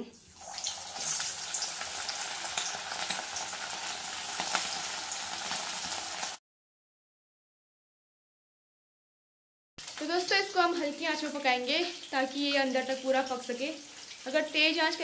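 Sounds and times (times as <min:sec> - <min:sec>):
chicken deep-frying in oil: 0:00.2 - 0:06.4, 0:09.8 - 0:15.0.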